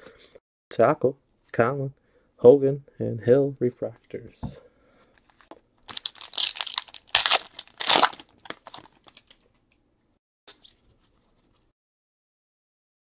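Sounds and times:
foil wrapper crinkling and tearing: 5.3 - 9.4.

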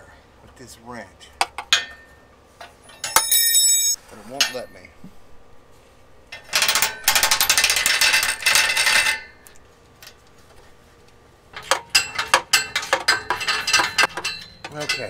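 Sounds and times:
metallic clinks: 2.8 - 4.6.

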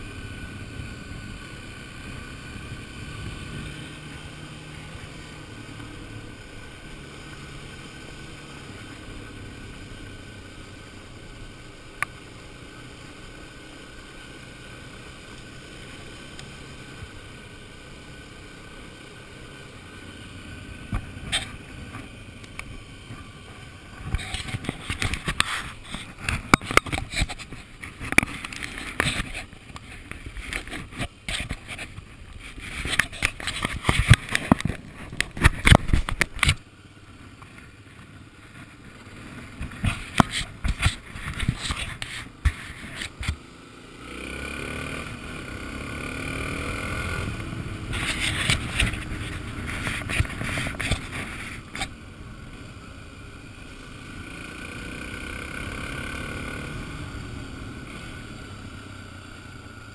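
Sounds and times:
motorcycle engine running: 0.0 - 59.9.

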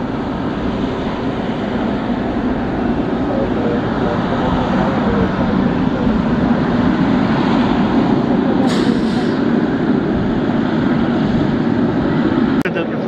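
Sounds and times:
jet engines rumbling: 0.0 - 13.0
short hiss: 8.7 - 9.4.

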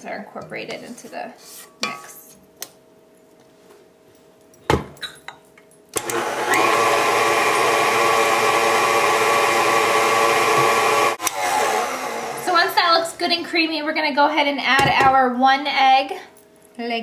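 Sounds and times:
stand mixer motor whining: 6.0 - 12.6.

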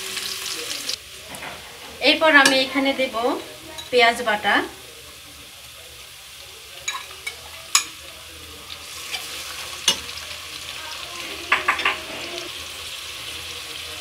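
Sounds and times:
onions sizzling in hot oil: 0.0 - 14.0
metal utensils knocking on pan: 11.4 - 12.4.

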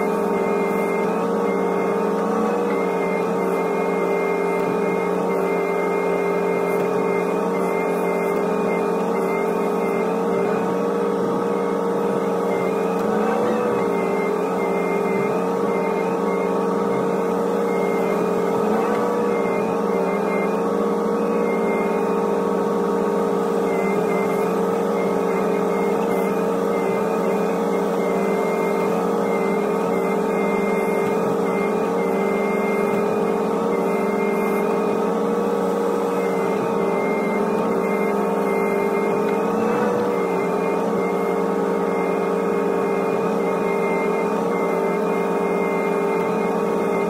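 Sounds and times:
excavator diesel engine running: 0.0 - 47.0
hydraulic whine: 0.0 - 47.0.

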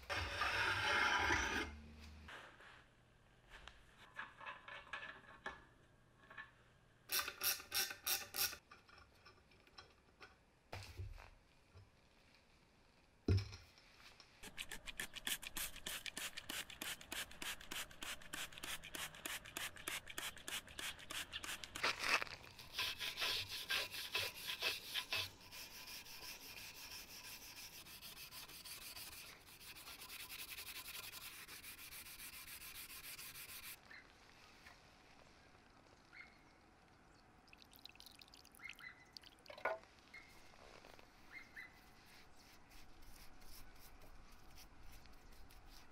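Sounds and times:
brush scrubbing metal: 14.4 - 21.8, 22.6 - 33.8.

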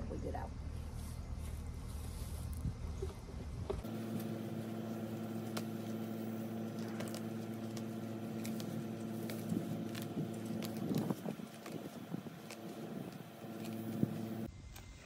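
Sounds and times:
low machine hum: 0.0 - 14.5
weeds pulled rustling foliage: 3.8 - 14.5.

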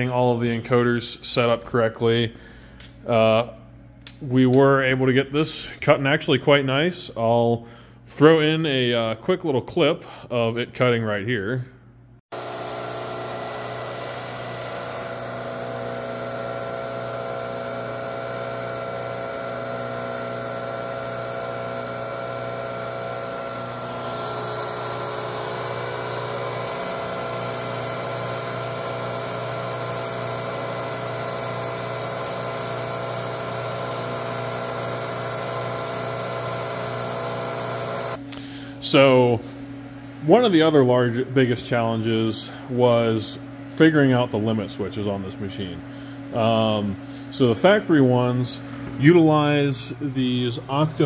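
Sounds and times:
mill spindle whine over hiss: 12.4 - 38.2, 44.7 - 51.0.

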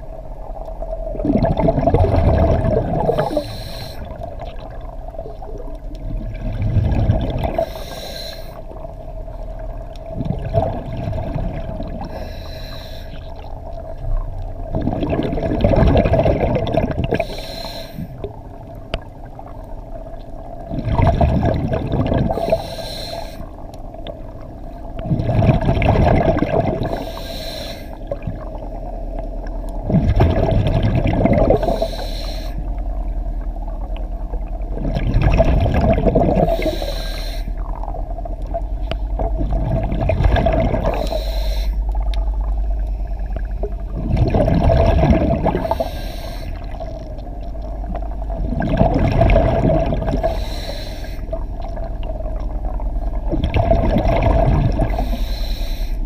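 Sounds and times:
steady hum: 0.0 - 56.0
exhaled bubbles rushing: 0.8 - 7.9, 8.7 - 12.2, 13.3 - 17.3, 18.0 - 22.6, 24.1 - 27.0, 29.8 - 31.9, 32.8 - 36.8, 37.6 - 41.2, 41.9 - 45.9, 46.5 - 50.4, 51.3 - 55.2
regulator inhalation hiss: 3.1 - 4.2, 7.6 - 8.7, 12.1 - 13.3, 17.2 - 18.2, 22.3 - 23.6, 26.9 - 28.0, 31.6 - 32.7, 36.4 - 37.6, 40.9 - 41.9, 45.6 - 46.8, 50.2 - 51.4, 54.9 - 56.0.

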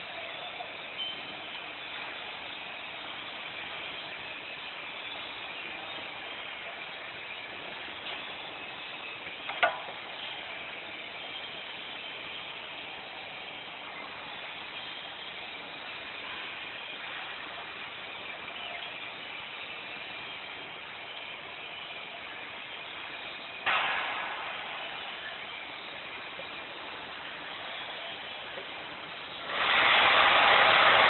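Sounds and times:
machinery running: 0.0 - 31.0
sharp clack: 23.6 - 26.6.

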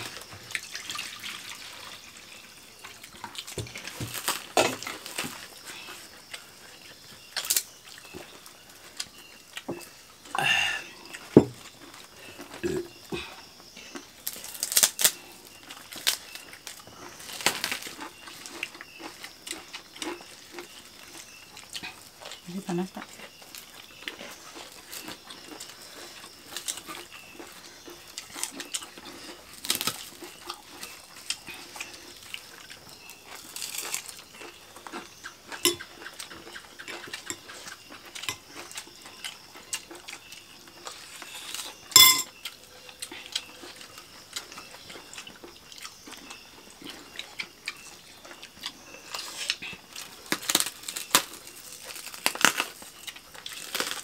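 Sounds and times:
chewing crunchy crackers: 0.0 - 54.0
metal spoon clinking bowl: 35.6 - 35.9, 41.9 - 42.3.

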